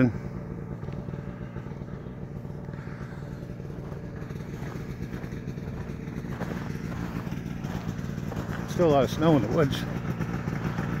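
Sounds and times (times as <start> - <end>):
snowmobile engine running: 0.0 - 11.0.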